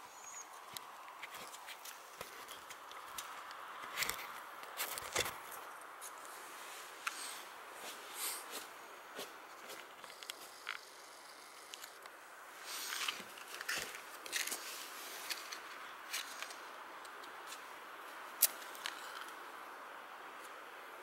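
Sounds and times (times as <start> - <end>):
small clicks and handling noises: 0.2 - 6.3, 9.6 - 12.2, 12.8 - 19.4.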